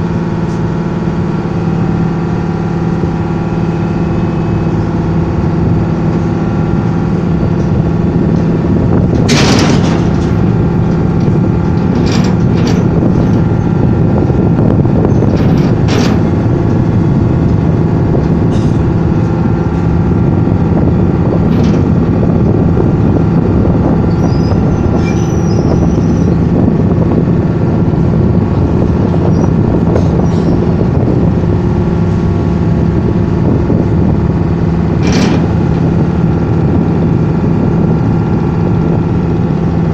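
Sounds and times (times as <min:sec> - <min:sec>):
boat engine running: 0:00.0 - 0:39.9
sharp knocks: 0:09.1 - 0:13.7.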